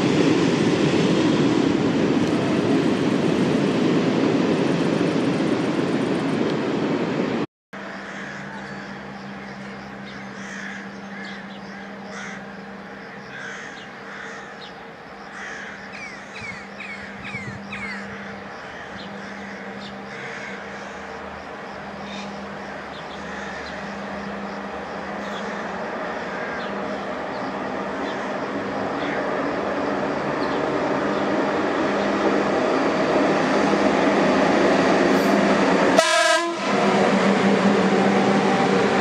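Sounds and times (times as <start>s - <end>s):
train rumbling past: 0.0s - 39.0s
birds chirping: 7.8s - 32.8s.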